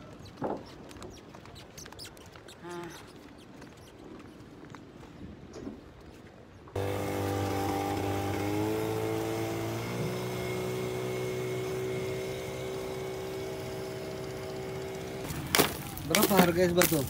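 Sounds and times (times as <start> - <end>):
motorboat engine running: 6.8 - 15.6.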